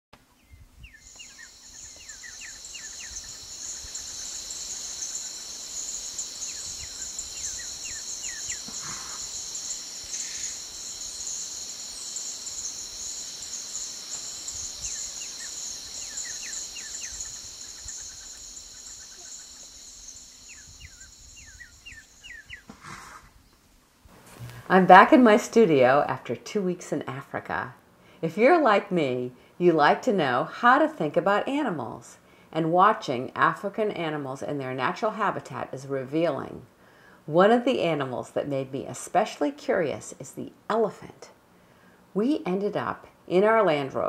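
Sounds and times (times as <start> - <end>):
bird chirps: 0.4 - 22.7
insect chorus: 0.8 - 23.2.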